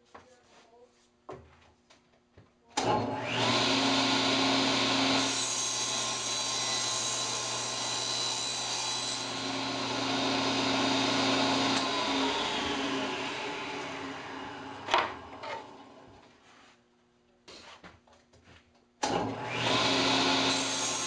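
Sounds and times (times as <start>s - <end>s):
saw blade cutting plywood: 2.9s - 15.8s, 19.0s - 21.0s
table saw whine: 2.9s - 16.1s, 19.1s - 21.0s.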